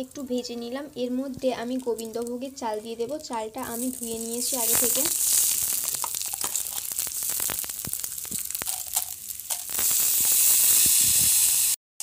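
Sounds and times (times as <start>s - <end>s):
rice sizzling in hot oil: 3.6s - 11.8s.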